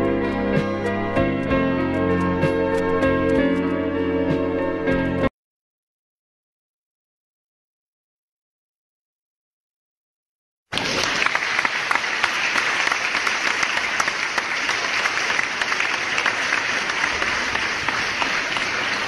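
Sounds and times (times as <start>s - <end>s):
crowd applauding: 10.7s - 19.0s.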